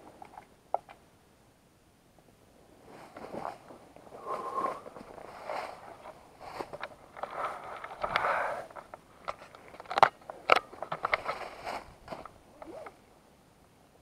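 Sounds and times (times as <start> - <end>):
clicks and crackles: 0.0 - 1.0, 4.9 - 13.0
faint hiss: 0.0 - 14.0.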